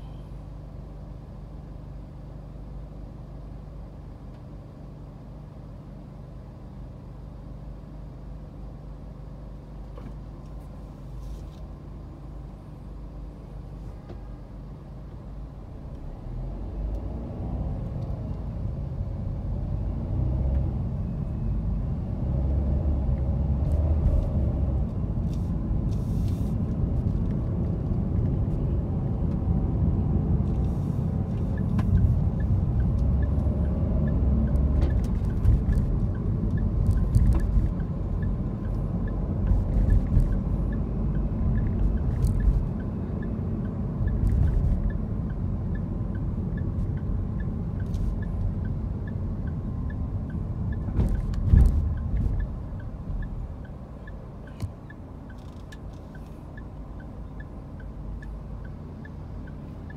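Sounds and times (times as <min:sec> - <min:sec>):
car engine rumble: 0:00.0 - 0:59.9
road rumble: 0:00.0 - 0:59.9.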